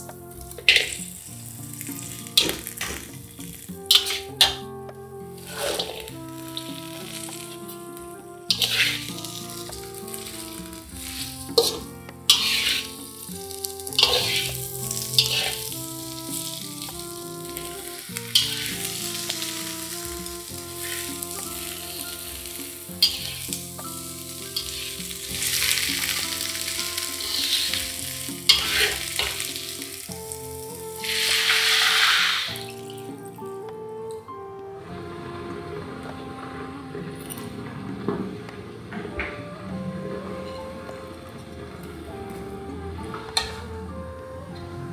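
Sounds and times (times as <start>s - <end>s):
oil sizzling in a wok: 0.0s - 33.6s
metal spatula scraping a wok: 0.5s - 32.7s
water poured into wok: 0.6s - 4.6s, 5.3s - 7.9s, 8.5s - 33.4s.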